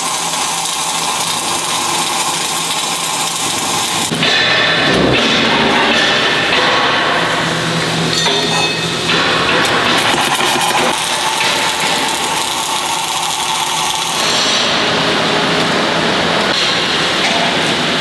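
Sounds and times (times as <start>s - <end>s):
welding arc crackling hiss: 0.0s - 4.2s, 9.8s - 17.2s.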